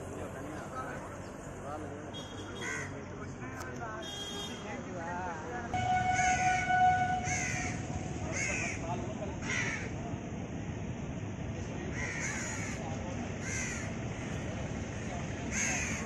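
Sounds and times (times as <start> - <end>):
outdoor background noise: 0.0 - 16.0
crow cawing: 2.6 - 3.0, 6.1 - 8.8, 9.4 - 10.0, 11.9 - 12.8, 13.4 - 14.0, 15.5 - 16.0.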